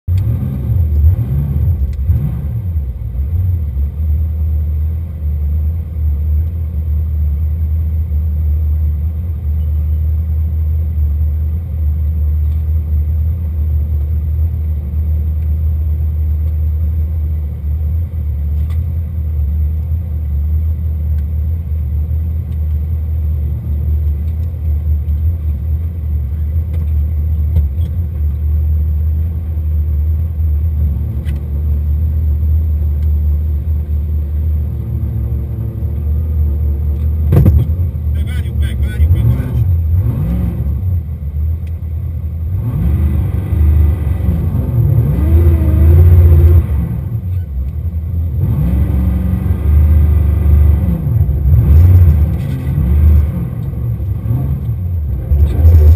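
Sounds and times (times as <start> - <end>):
car engine idling: 0.1 - 40.2.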